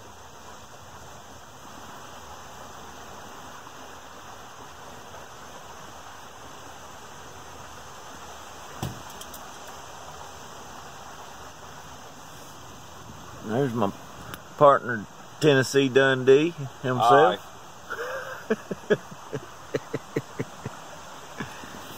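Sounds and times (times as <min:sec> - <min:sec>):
creek running over rocks: 0:00.0 - 0:21.9
brief knock: 0:08.8 - 0:09.2.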